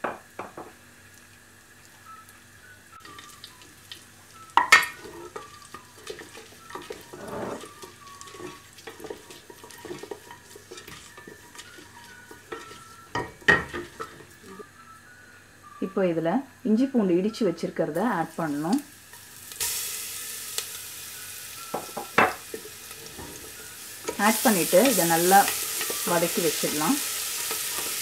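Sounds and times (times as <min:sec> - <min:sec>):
spices sizzling in hot oil: 0:00.0 - 0:14.8, 0:16.7 - 0:28.0
wooden spatula scraping a pot: 0:04.9 - 0:14.6.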